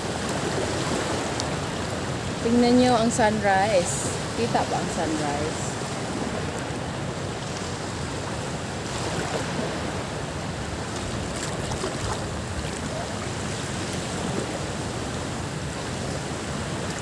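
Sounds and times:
sea water rushing: 0:00.0 - 0:17.0
small splashes: 0:10.9 - 0:14.7.

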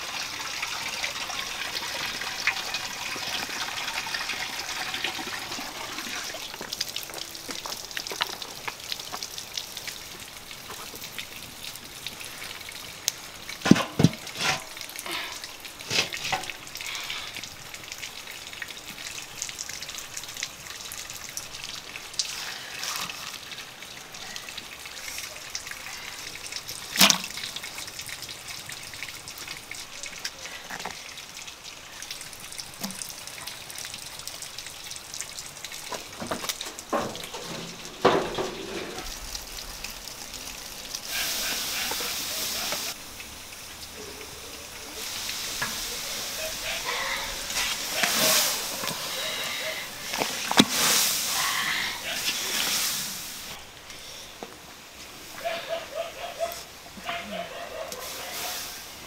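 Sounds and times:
steady hiss: 0:36.9 - 0:55.5.

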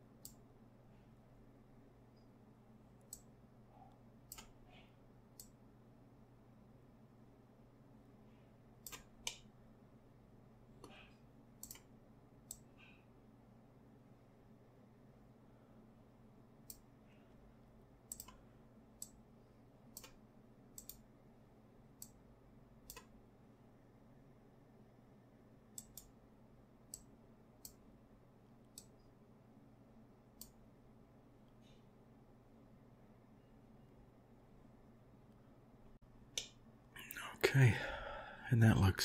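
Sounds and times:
faint low hum: 0:00.0 - 0:39.0
computer mouse clicking: 0:00.2 - 0:00.4, 0:03.0 - 0:03.3, 0:04.2 - 0:04.6, 0:05.3 - 0:05.6, 0:08.8 - 0:09.5, 0:10.8 - 0:12.7, 0:16.6 - 0:16.9, 0:18.1 - 0:19.2, 0:19.9 - 0:21.1, 0:22.0 - 0:22.2, 0:22.8 - 0:23.2, 0:25.7 - 0:26.2, 0:26.8 - 0:27.9, 0:28.6 - 0:29.1, 0:30.3 - 0:30.6.

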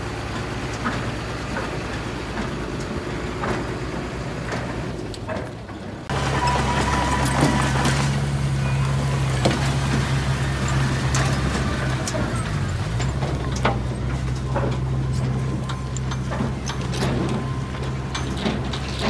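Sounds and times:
bulldozer diesel engine running: 0:00.0 - 0:19.0
sharp clicks and clanks: 0:10.6 - 0:19.0.

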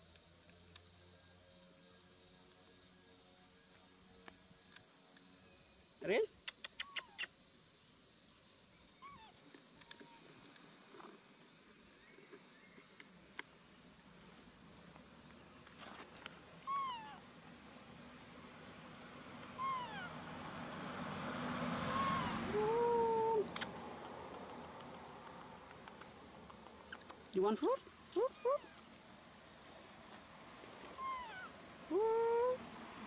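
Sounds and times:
insect drone: 0:00.0 - 0:33.0
baby monkey squeaks: 0:06.5 - 0:07.3, 0:09.0 - 0:09.3, 0:16.7 - 0:17.2, 0:19.6 - 0:20.1, 0:21.9 - 0:22.4, 0:31.0 - 0:31.5.

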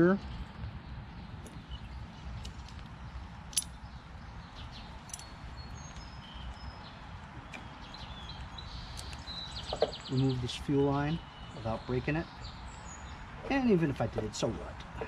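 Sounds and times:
bird chirps: 0:00.2 - 0:15.0
locking pliers clicking: 0:03.5 - 0:03.8.

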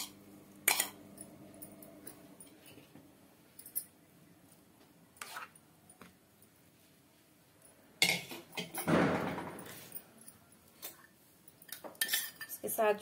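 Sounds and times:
spoon clinking and scraping bowl: 0:00.0 - 0:02.5, 0:10.7 - 0:12.7.

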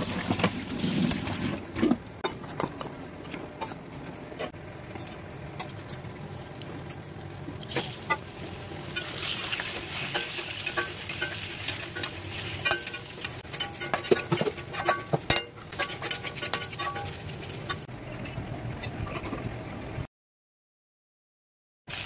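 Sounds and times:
meat sizzling in hot oil: 0:07.6 - 0:14.0
wooden spatula scraping a wok: 0:09.0 - 0:17.9.

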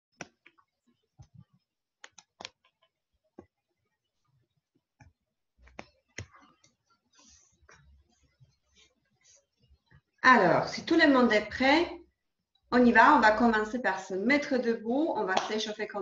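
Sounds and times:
faint irregular clicks: 0:02.0 - 0:02.9.

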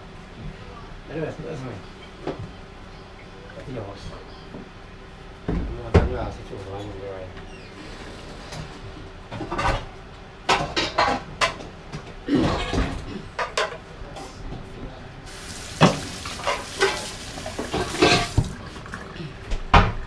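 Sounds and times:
pots and dishes clattering: 0:10.5 - 0:13.8, 0:15.8 - 0:18.6
steady hiss: 0:15.3 - 0:18.3.

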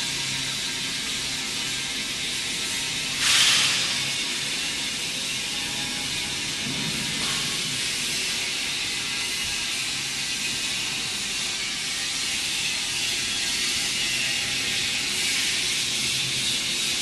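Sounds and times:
workshop background hiss: 0:00.2 - 0:17.0
short loud hiss: 0:03.2 - 0:04.0.

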